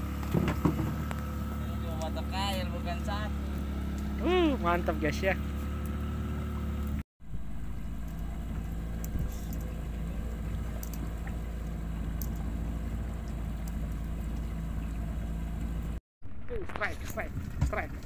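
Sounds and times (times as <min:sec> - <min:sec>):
outboard motor running: 0:00.0 - 0:18.0
water noise: 0:00.0 - 0:18.0.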